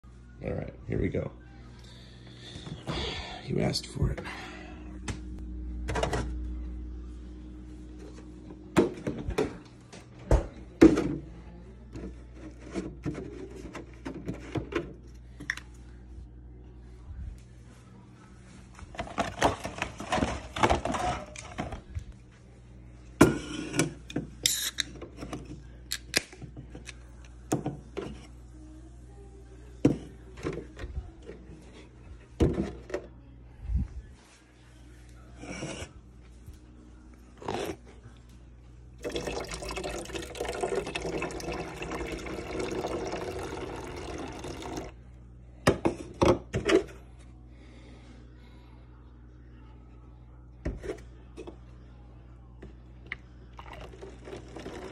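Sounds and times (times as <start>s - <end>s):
liquid pouring into metal sink: 39.0s - 44.9s.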